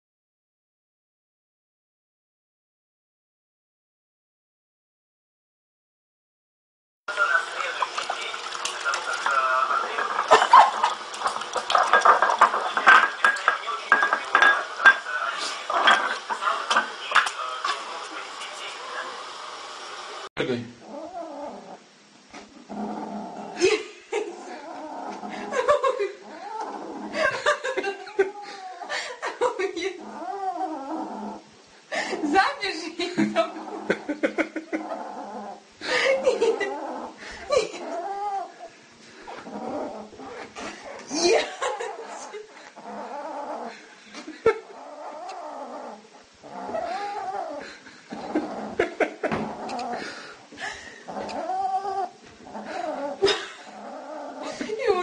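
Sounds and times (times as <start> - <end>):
kitten growling and yowling: 20.8 - 21.8, 24.2 - 29.0, 29.9 - 31.4, 33.5 - 38.7, 39.3 - 43.8, 44.4 - 50.2, 51.0 - 54.8.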